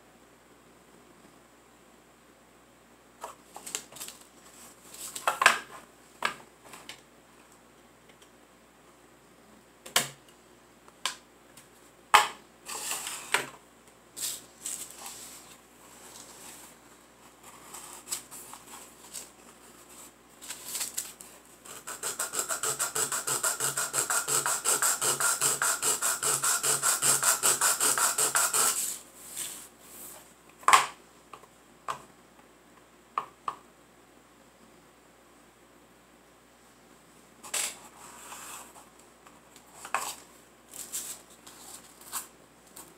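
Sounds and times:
wood sanded on sandpaper: 21.7s - 29.0s.

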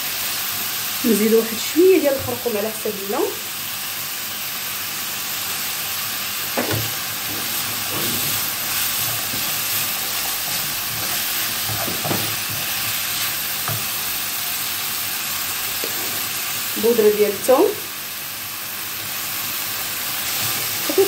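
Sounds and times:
meat and onion sizzling in oil: 0.0s - 21.0s
wooden spatula scraping pan: 6.6s - 13.9s, 15.8s - 16.4s.

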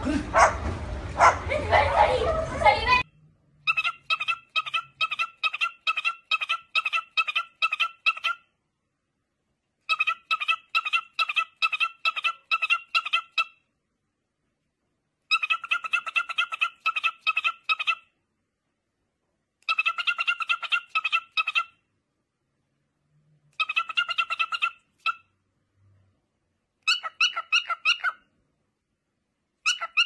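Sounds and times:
cockatiel chirping: 3.6s - 8.4s, 9.9s - 13.6s, 15.3s - 18.0s, 19.6s - 21.7s, 23.6s - 25.3s, 26.8s - 28.2s, 29.6s - 30.0s.

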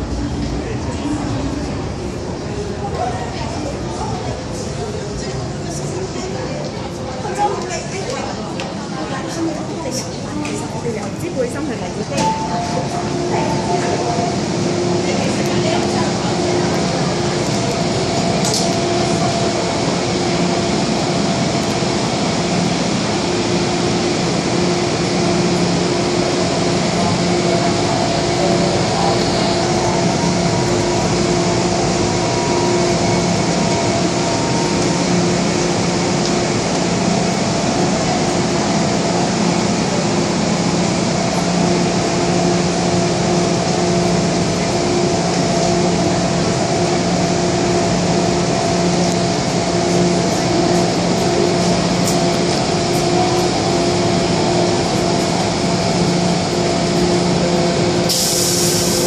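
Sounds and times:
train humming at platform: 0.0s - 59.0s
air-conditioning hiss: 55.0s - 59.0s.

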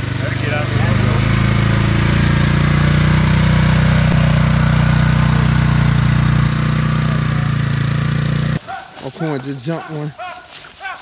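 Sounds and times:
utility vehicle engine running: 0.0s - 8.6s.

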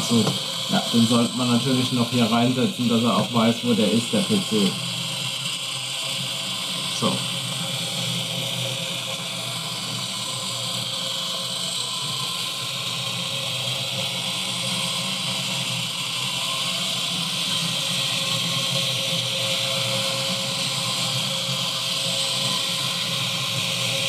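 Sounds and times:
small electric motors whirring: 0.0s - 24.0s.

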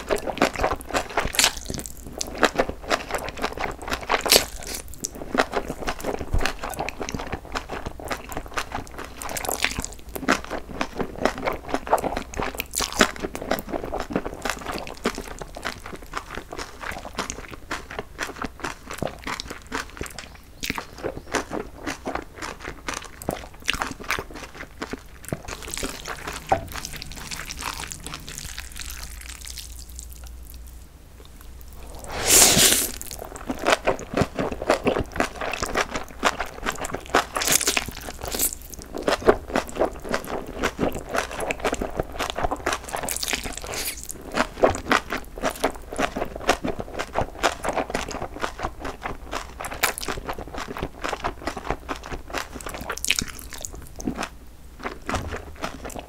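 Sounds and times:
wet chewing with crunching: 0.0s - 56.0s
slurping noodles: 31.7s - 33.9s, 43.1s - 44.1s.

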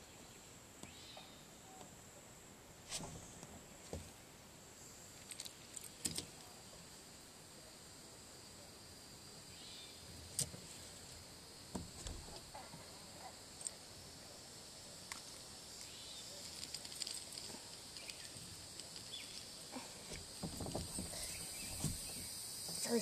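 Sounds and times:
insect trilling: 11.4s - 23.0s.

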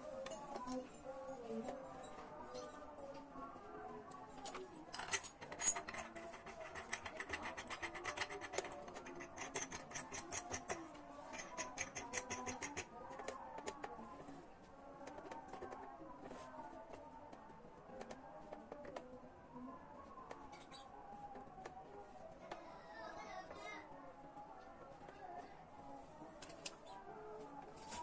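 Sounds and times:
rapid metallic clicking of tool: 5.0s - 13.7s.

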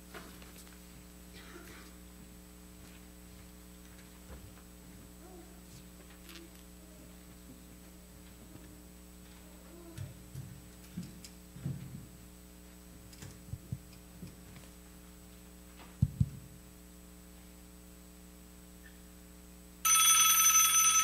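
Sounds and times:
phone ringing: 19.8s - 21.0s.

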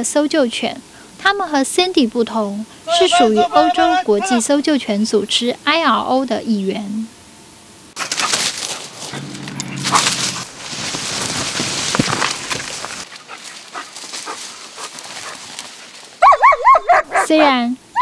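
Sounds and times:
rustling of vegetation: 8.0s - 17.7s
dog yipping: 16.2s - 18.0s.

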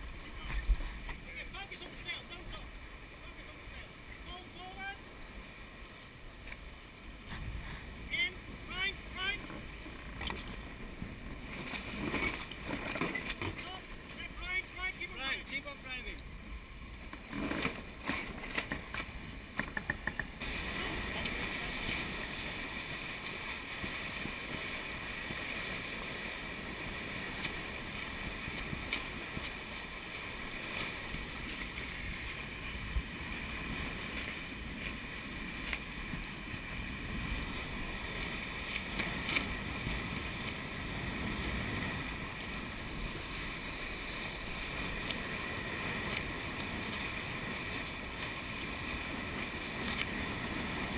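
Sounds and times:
wind and water rushing past boat: 0.0s - 50.9s
bow wave breaking: 8.4s - 50.0s
knocks and clicks: 17.1s - 20.4s.

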